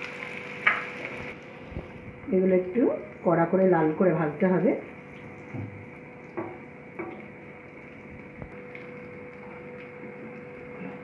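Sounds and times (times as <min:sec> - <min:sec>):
oil sizzling in deep frying: 0:00.0 - 0:11.0
wooden spatula knocking pan: 0:06.4 - 0:07.2.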